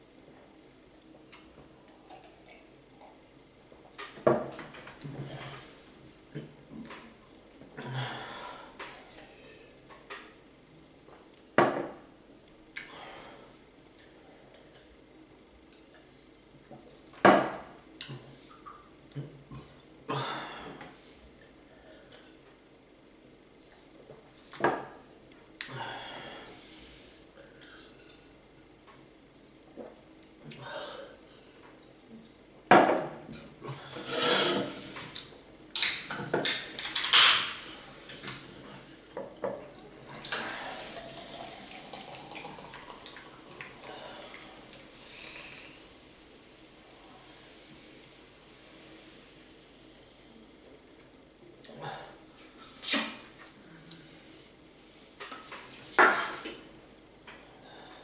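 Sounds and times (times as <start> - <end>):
soda pouring into glass: 40.2 - 43.9.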